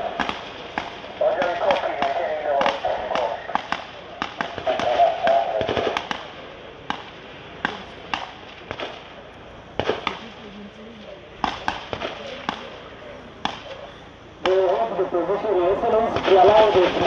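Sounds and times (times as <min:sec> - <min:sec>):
gunshots: 0:00.0 - 0:09.2, 0:09.8 - 0:17.0.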